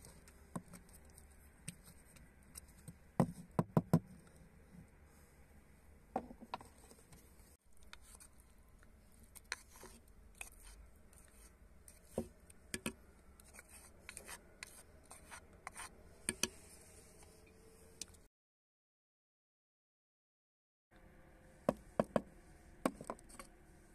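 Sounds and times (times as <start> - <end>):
wooden spoon scraping mortar: 6.5 - 16.9.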